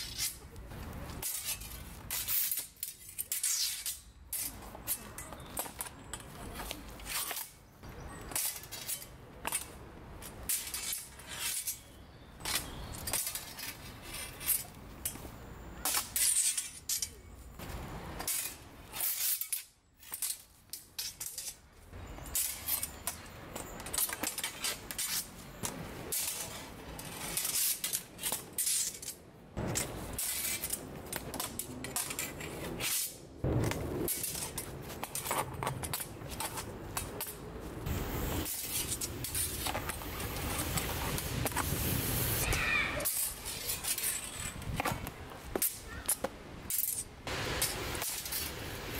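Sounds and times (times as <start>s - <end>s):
steel swords clashing: 1.2s - 6.3s, 15.8s - 17.3s.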